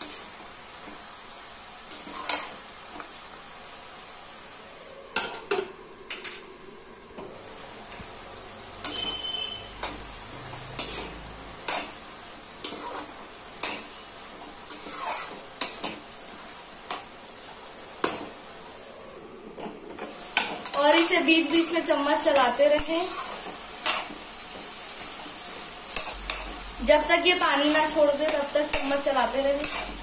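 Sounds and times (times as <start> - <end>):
food sizzling: 0.0 - 30.0
metal spatula scraping a steel pan: 1.9 - 2.6, 8.8 - 12.0, 12.6 - 13.9, 14.7 - 15.8, 22.4 - 24.1, 29.5 - 30.0.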